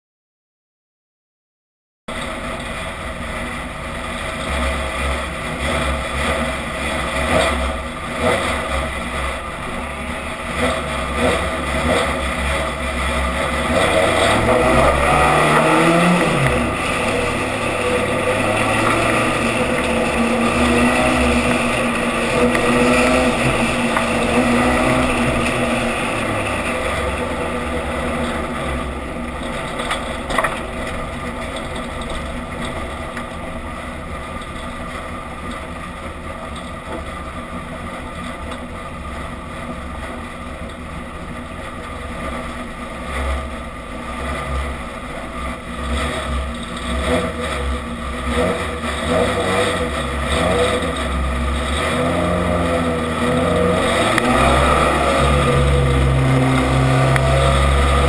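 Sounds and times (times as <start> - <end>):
race car engine accelerating: 4.1 - 33.6, 42.3 - 58.0.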